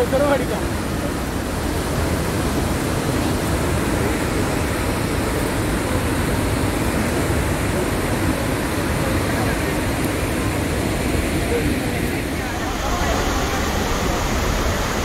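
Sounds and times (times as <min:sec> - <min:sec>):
waterfall rushing: 0:00.0 - 0:15.0.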